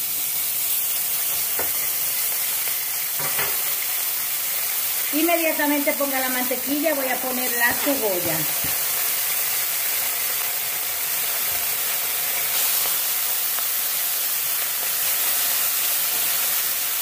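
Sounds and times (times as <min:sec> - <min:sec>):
onion sizzling in a frying pan: 0:00.0 - 0:17.0.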